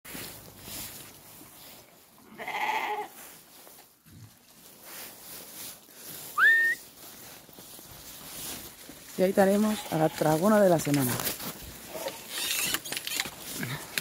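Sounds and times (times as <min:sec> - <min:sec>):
goat bleating: 0:02.2 - 0:03.2
short rising whistle: 0:06.4 - 0:06.8.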